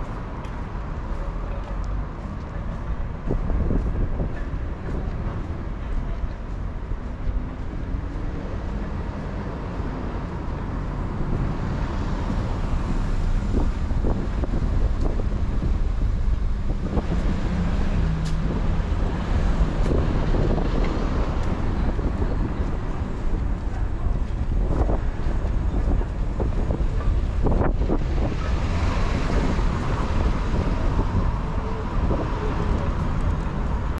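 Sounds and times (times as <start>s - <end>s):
car traffic rumble: 0.0s - 34.0s
city street background noise: 0.0s - 34.0s
wind buffeting microphone: 2.8s - 34.0s.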